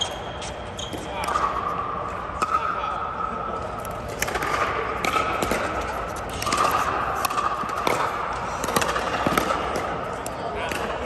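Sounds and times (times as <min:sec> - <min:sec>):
steady background noise: 0:00.0 - 0:11.0
paddles hitting plastic ball: 0:04.1 - 0:10.0.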